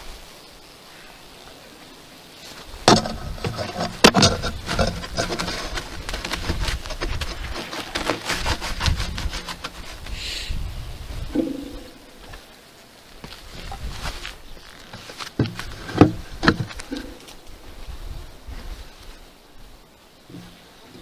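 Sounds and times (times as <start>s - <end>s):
fabric rustling and scraping on wood: 2.4s - 10.2s, 13.2s - 17.4s
sharp wooden knocks: 2.8s - 10.2s.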